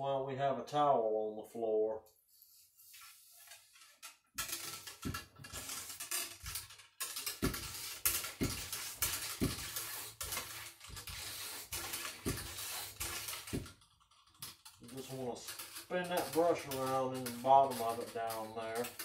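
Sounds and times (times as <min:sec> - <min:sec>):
bore brush scrubbing barrel: 0:07.1 - 0:13.8, 0:14.8 - 0:19.0
dull thumps: 0:07.3 - 0:13.9.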